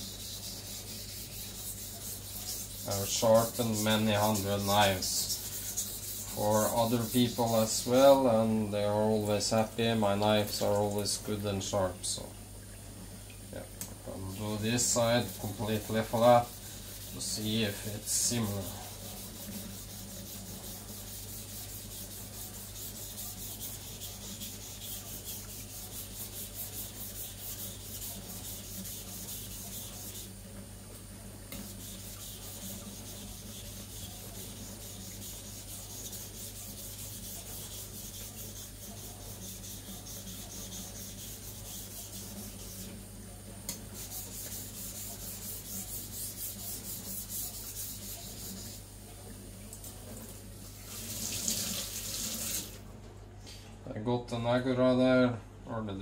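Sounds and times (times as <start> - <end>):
knife blade scraping on wet whetstone: 0.0 - 8.3, 14.8 - 30.4, 31.5 - 42.9.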